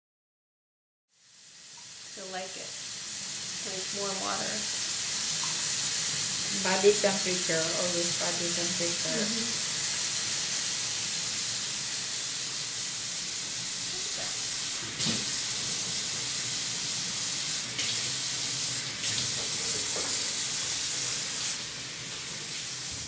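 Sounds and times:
faucet sprayer running water: 0:01.2 - 0:23.0.

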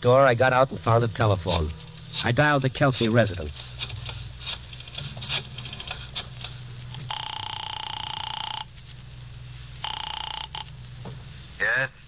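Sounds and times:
buzzy telephone ring: 0:06.9 - 0:08.8, 0:09.8 - 0:10.8.

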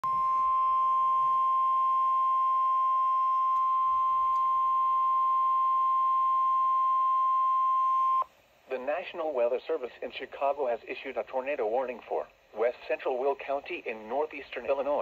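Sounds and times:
long steady high alarm beep: 0:00.0 - 0:08.3.

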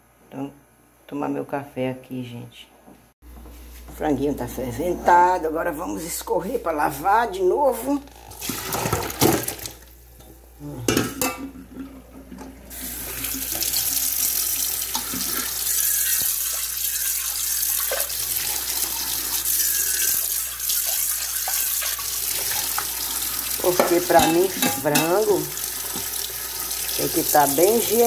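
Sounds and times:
tap water running: 0:08.0 - 0:28.0
water draining into steel sink: 0:08.2 - 0:10.0, 0:11.2 - 0:28.0
pot knocking on sink: 0:23.7 - 0:25.2.

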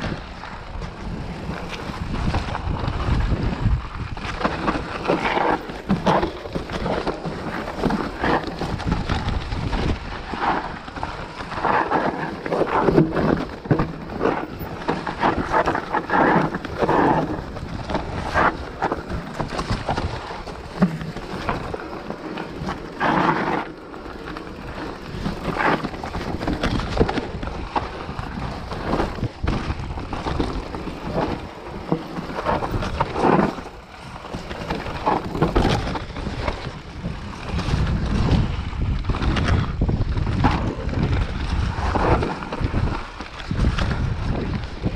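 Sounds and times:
bike rattling and knocking: 0:00.0 - 0:44.9
wind rumble on microphone: 0:00.0 - 0:44.9
tyres crunching over dirt and stones: 0:00.7 - 0:44.9.

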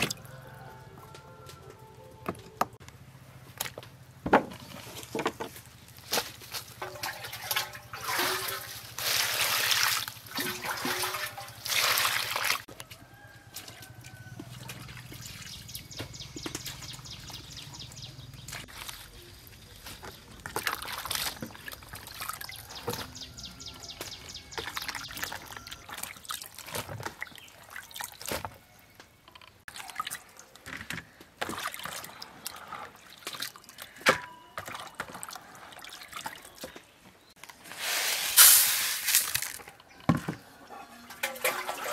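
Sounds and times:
water splashing in a basin: 0:06.4 - 0:12.7, 0:13.6 - 0:15.8, 0:18.5 - 0:23.4, 0:24.3 - 0:28.5, 0:29.7 - 0:34.0, 0:34.6 - 0:36.8, 0:41.0 - 0:41.9.

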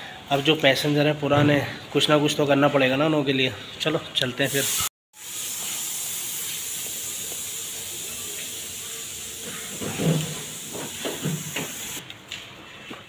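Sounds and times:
rain hissing: 0:04.6 - 0:12.0.

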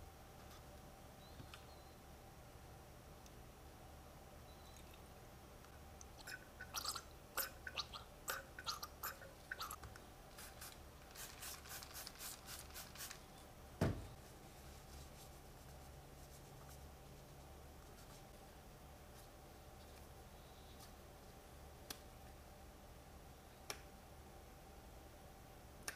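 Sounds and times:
thump: 0:13.8 - 0:14.2.

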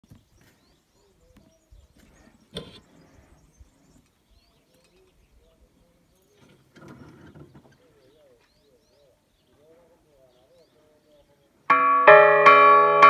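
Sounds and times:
faint bird calls: 0:00.1 - 0:11.6.

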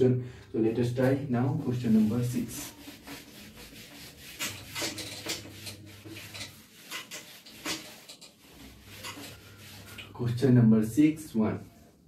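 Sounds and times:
eraser wiping a whiteboard: 0:00.9 - 0:10.4.

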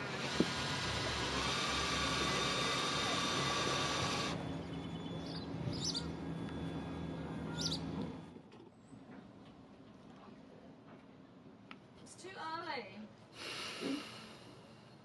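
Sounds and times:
cordless drill boring fibreglass: 0:00.0 - 0:04.4.

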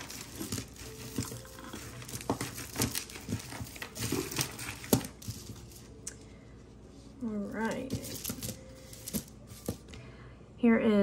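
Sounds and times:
jewelry and packaging rustling: 0:00.0 - 0:06.0, 0:06.8 - 0:10.0.

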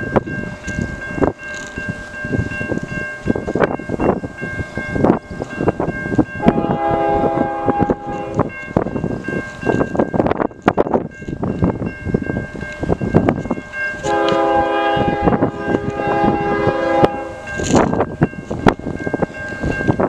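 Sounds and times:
wind buffeting microphone: 0:00.0 - 0:20.0
distant train horn: 0:06.4 - 0:08.5, 0:14.0 - 0:17.7.

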